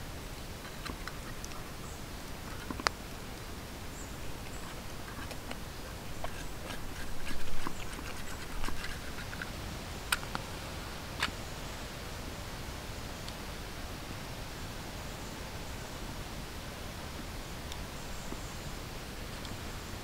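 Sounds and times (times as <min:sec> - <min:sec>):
knife scraping wood: 0:04.4 - 0:09.5.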